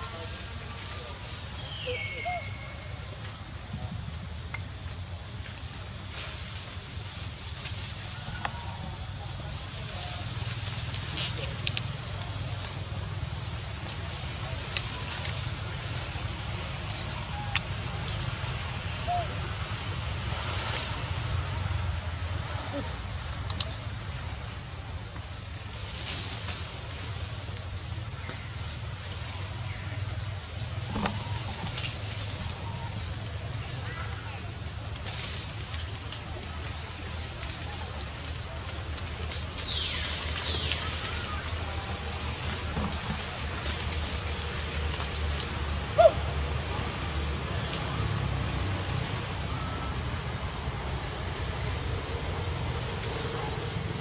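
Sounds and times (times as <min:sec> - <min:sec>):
even hiss: 0:00.0 - 0:54.0
low outdoor rumble: 0:00.0 - 0:54.0
falling whistle-like calls: 0:01.4 - 0:03.5, 0:19.0 - 0:19.8, 0:49.2 - 0:51.0.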